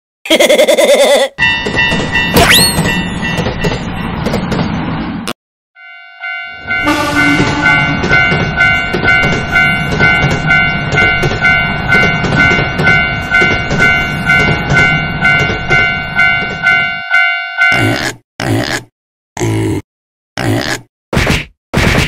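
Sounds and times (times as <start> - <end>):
crossing alarm bell ringing: 1.4 - 4.2, 5.8 - 18.0
passing train rumble and clatter: 1.4 - 5.3, 6.4 - 17.8.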